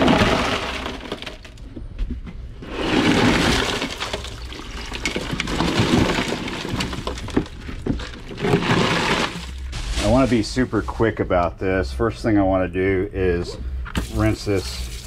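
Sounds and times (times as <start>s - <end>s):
ice and water clattering into sink: 0.0s - 1.6s, 2.6s - 9.7s.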